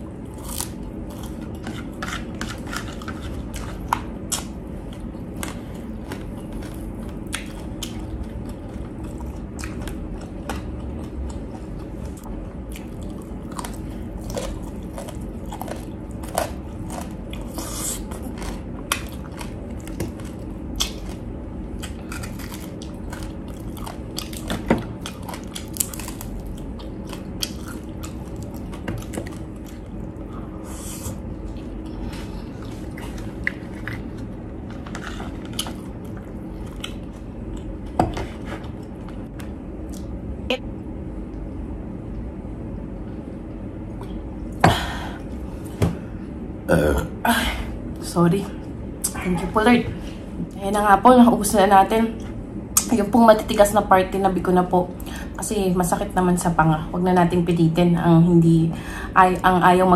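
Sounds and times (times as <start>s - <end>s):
chewing crispy food: 0.1s - 40.2s.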